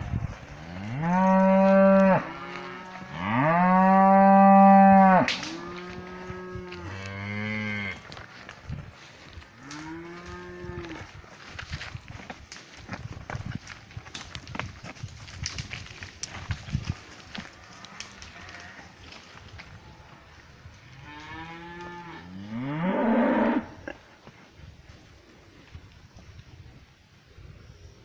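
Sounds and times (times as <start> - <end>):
cattle mooing: 0.7 - 8.0, 21.0 - 23.8.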